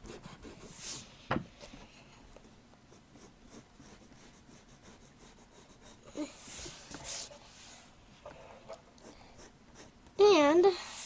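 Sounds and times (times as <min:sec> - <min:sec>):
pencil scratching on paper: 0:00.0 - 0:01.1, 0:02.9 - 0:07.8, 0:08.4 - 0:10.0.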